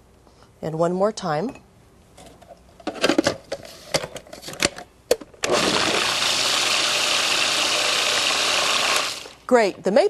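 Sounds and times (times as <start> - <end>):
food processor motor running: 5.5 - 9.4.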